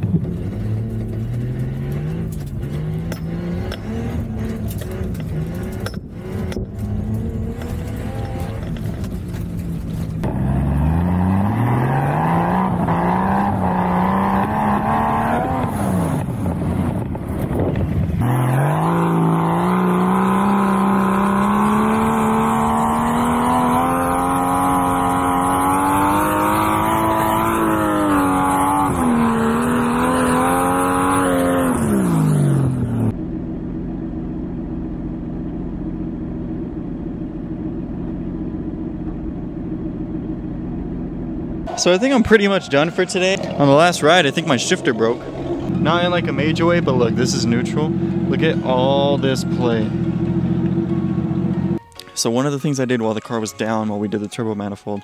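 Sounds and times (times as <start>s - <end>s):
car engine revving hard: 0.0s - 8.9s, 10.2s - 17.2s, 17.8s - 33.1s.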